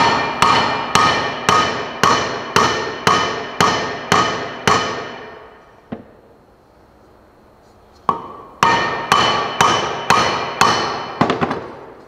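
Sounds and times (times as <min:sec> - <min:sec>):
hammer striking metal bolt: 0:00.0 - 0:05.6, 0:08.1 - 0:11.3.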